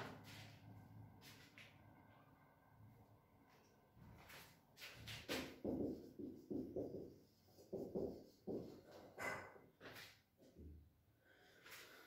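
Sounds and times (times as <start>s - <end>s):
marker scratching on whiteboard: 5.3s - 9.2s.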